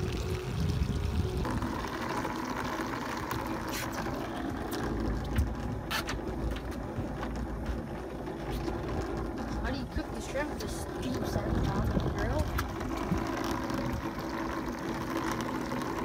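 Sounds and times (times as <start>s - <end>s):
low rumble of wind: 0.0s - 16.0s
hiss of line running: 1.4s - 4.6s.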